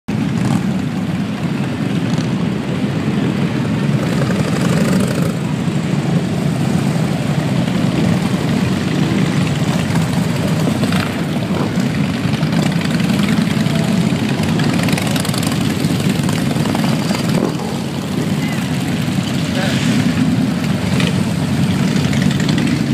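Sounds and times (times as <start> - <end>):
motorcycles riding past: 0.1 - 22.9.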